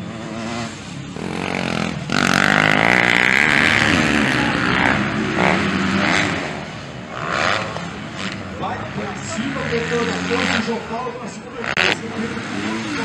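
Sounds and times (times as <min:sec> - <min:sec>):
motocross bike engines revving: 0:00.0 - 0:13.0.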